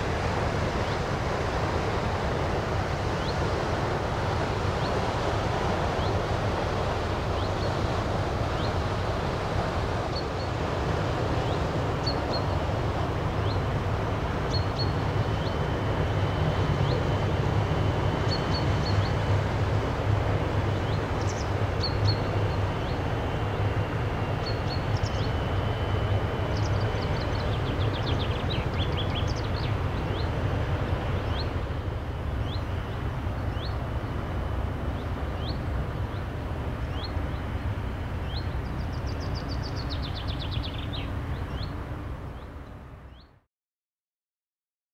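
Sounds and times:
ship engines droning: 0.0 - 43.2
small birds chirping: 13.4 - 13.7, 14.4 - 17.2, 20.7 - 23.3, 24.4 - 30.4, 32.4 - 33.8, 34.9 - 36.3, 36.9 - 37.5, 38.2 - 41.8.

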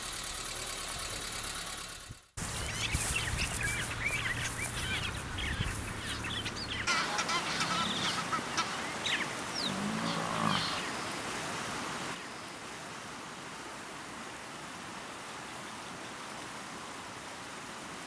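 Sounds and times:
birds chirping and whistling: 2.4 - 10.8.

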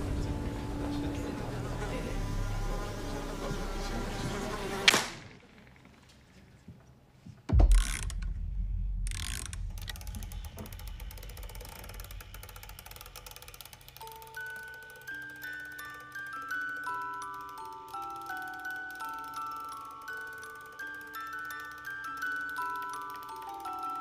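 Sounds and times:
heavy low thud: 7.5 - 13.2
sharp hit: 7.5 - 13.5
music box winding clicks: 7.7 - 8.2, 9.1 - 24.0.

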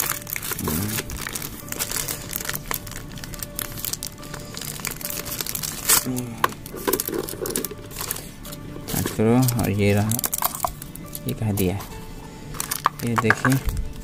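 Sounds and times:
plastic bag crinkling and tearing: 0.0 - 11.7, 12.5 - 13.8
background music: 0.0 - 14.0.

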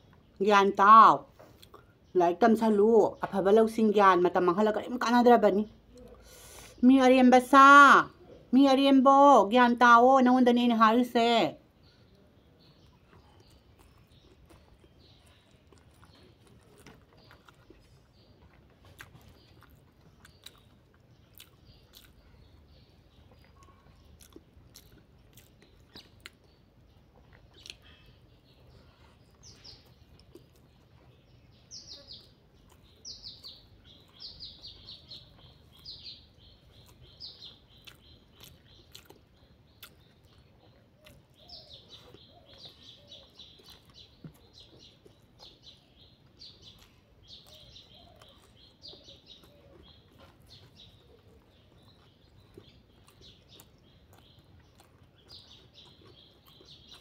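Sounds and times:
bird chirping: 0.0 - 57.0
person chewing: 1.5 - 2.0, 12.8 - 57.0.

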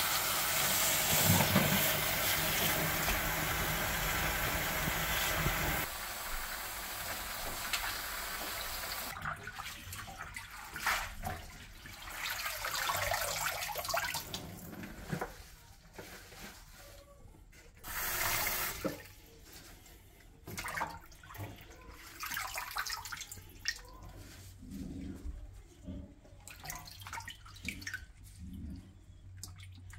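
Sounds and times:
kitchen tap running: 0.0 - 9.2, 17.8 - 19.1
water splashing in sink: 0.0 - 14.7, 20.4 - 24.2, 26.3 - 29.9.

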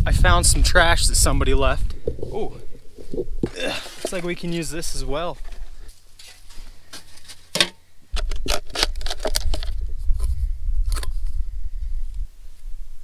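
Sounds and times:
wind rumble on microphone: 0.0 - 3.6, 8.1 - 13.0
empty cans clicking and scraping: 5.4 - 9.8.

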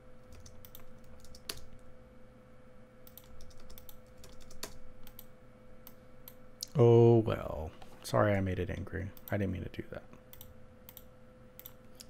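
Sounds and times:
faint electrical hum: 0.0 - 12.0
computer keyboard keystrokes: 0.3 - 1.8, 3.1 - 5.3.

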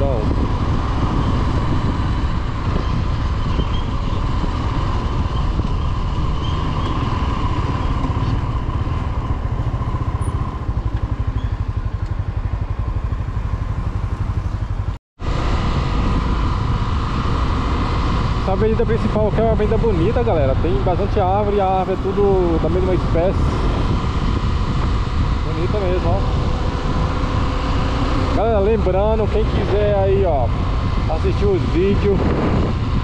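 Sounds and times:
motorcycle engine running: 0.0 - 33.0.

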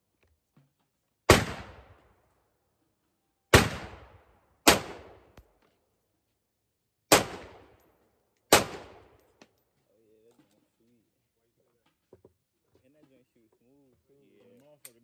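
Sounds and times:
rifle shots with echo: 1.3 - 2.2, 3.5 - 5.5, 7.1 - 7.9, 8.5 - 9.3.

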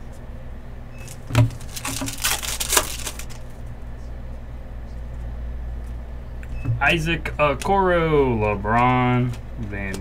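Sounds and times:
foil wrapper tearing and crinkling: 1.1 - 3.6.

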